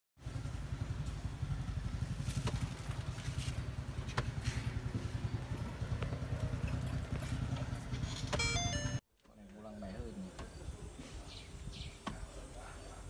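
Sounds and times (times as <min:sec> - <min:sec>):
engine idling: 0:00.2 - 0:09.0.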